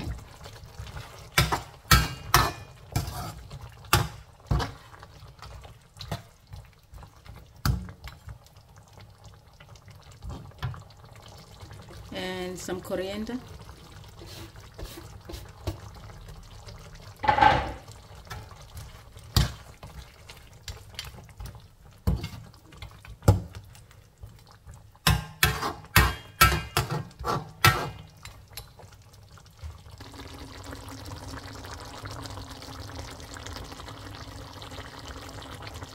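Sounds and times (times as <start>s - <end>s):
sauce simmering and bubbling: 0.0s - 35.9s
metal spatula scraping a wok: 2.3s - 3.5s, 25.4s - 28.0s.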